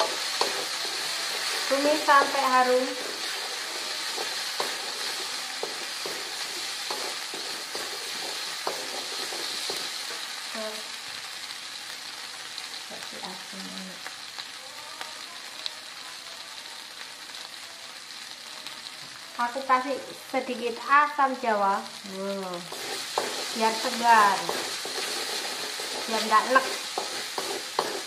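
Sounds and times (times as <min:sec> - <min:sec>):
wooden spatula scraping a wok: 0:00.0 - 0:10.3, 0:22.7 - 0:28.0
spice paste sizzling in oil: 0:00.0 - 0:28.0.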